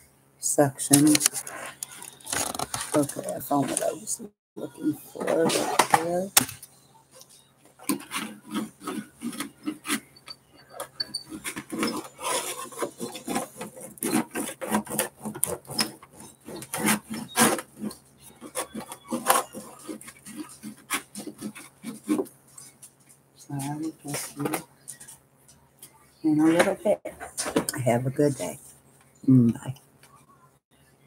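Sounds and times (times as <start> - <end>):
hands rubbing plastic sheet: 1.0 - 4.0, 11.0 - 25.2.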